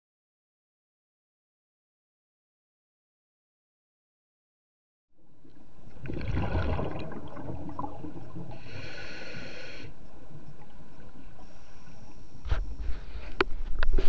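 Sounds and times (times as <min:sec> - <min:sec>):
exhaled air bubbling underwater: 0:05.2 - 0:13.0
regulator hissing inhale: 0:08.5 - 0:10.2, 0:11.2 - 0:14.0.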